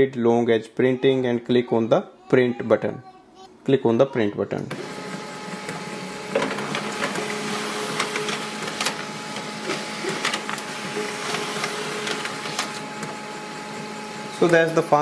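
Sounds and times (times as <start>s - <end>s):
laser printer whirring: 4.6s - 15.0s
paper feeding clicks: 4.7s - 15.0s.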